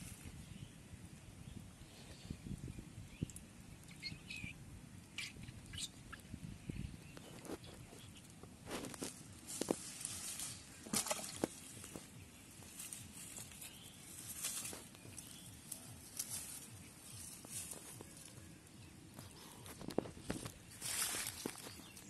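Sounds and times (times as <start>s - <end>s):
quiet rural outdoor background: 0.0s - 22.0s
dry plants crunching underfoot: 7.1s - 22.0s.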